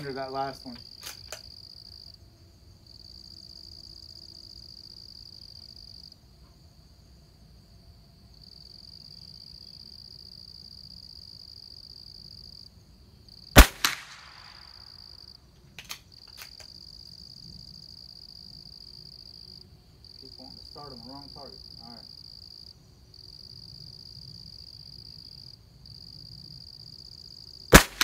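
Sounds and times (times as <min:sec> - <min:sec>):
insects chirring: 0:00.0 - 0:28.0
rifle shot: 0:13.6 - 0:14.9, 0:27.7 - 0:28.0
sharp clicks: 0:15.7 - 0:16.7.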